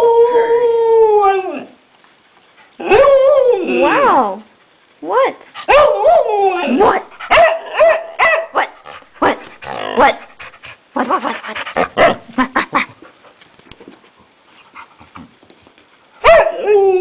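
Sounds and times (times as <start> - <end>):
puppy barking: 5.7 - 6.1, 7.3 - 9.4, 16.2 - 16.6.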